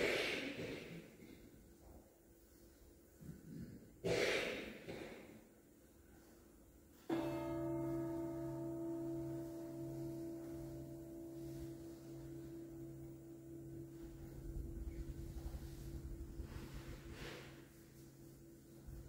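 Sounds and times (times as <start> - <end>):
ringing musical note: 7.1 - 19.0.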